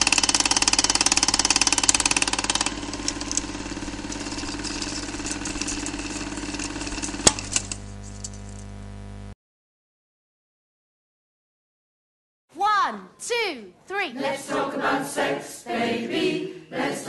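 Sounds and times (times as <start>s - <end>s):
film projector clatter: 0.0s - 8.6s
mechanical whirr: 0.0s - 9.2s
steady low hum: 1.6s - 9.4s.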